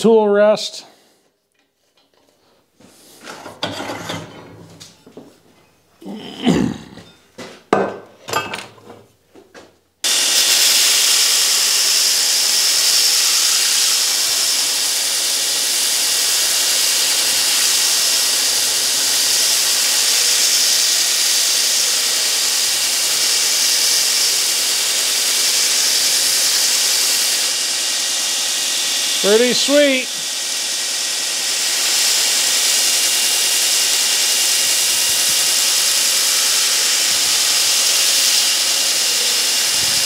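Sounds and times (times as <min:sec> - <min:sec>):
footsteps: 0:01.8 - 0:03.6, 0:04.6 - 0:05.8, 0:07.0 - 0:09.8
belt grinder grinding steel: 0:10.0 - 0:40.0.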